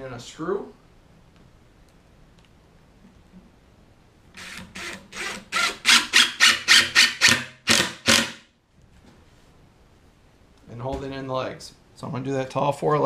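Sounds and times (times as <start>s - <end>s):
cordless driver driving screw: 4.4s - 8.4s.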